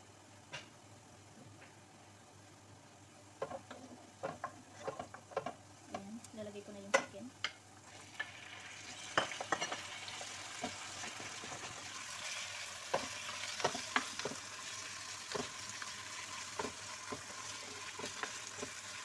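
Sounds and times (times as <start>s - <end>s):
wooden spoon knocking on pan: 3.4s - 5.6s, 10.6s - 11.8s, 12.9s - 14.5s, 15.3s - 18.8s
chicken sizzling in hot oil: 7.6s - 19.0s.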